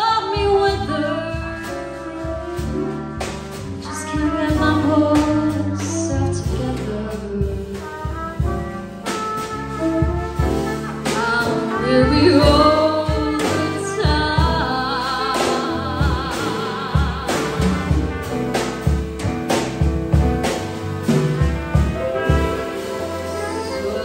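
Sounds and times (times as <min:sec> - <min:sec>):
drum kit: 0:00.0 - 0:24.0
piano: 0:00.0 - 0:24.0
trumpet: 0:00.0 - 0:24.0
saxophone: 0:00.3 - 0:24.0.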